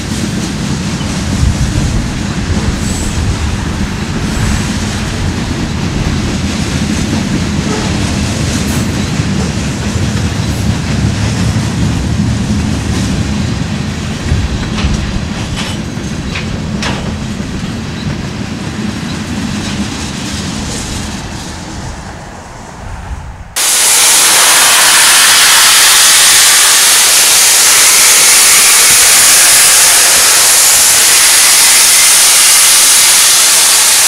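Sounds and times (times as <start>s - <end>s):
train cars rumbling on rails: 0.0s - 34.0s
steam venting hiss: 23.6s - 34.0s.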